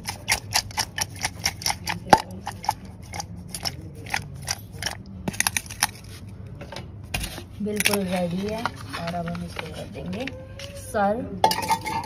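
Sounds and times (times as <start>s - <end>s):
food clicking in a steel bowl: 0.0s - 6.0s.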